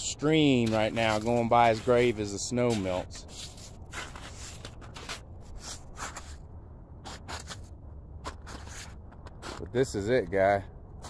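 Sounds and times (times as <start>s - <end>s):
steady low rumble: 0.0s - 11.0s
footsteps scuffing on dirt and snow: 0.2s - 6.4s, 7.1s - 7.7s.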